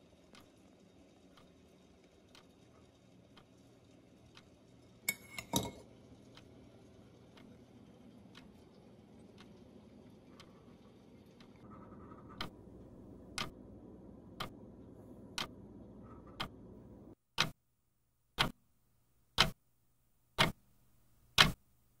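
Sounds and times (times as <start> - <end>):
faint room noise: 0.0 - 22.0
steady ticking: 0.1 - 5.0, 6.1 - 14.6.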